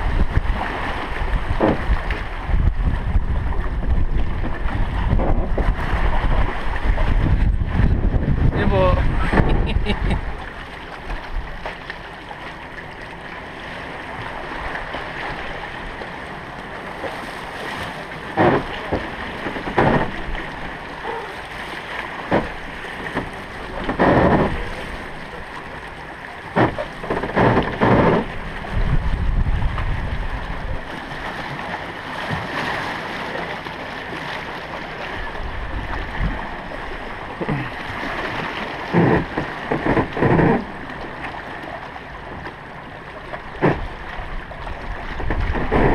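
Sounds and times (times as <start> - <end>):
wind on microphone: 0.0 - 10.4, 26.5 - 31.4, 43.6 - 45.9
boat sliding down slipway: 0.0 - 45.9.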